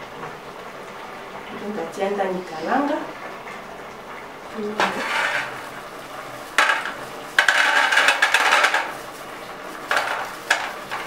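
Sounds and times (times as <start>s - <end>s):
nuts clattering in metal bowl: 4.8s - 5.6s, 6.6s - 9.0s, 9.8s - 11.0s
plastic bag crinkling: 6.4s - 11.0s.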